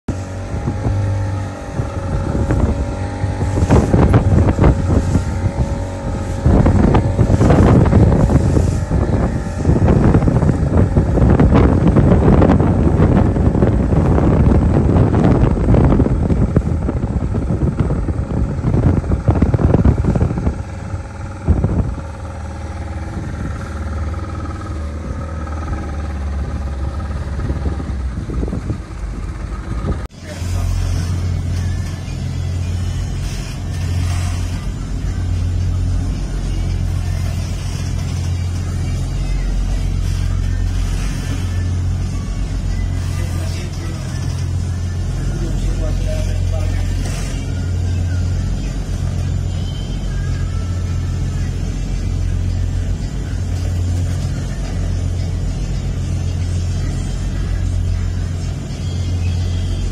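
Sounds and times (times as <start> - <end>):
diesel engines humming: 0.0 - 59.9
wind buffeting microphone: 0.1 - 57.8.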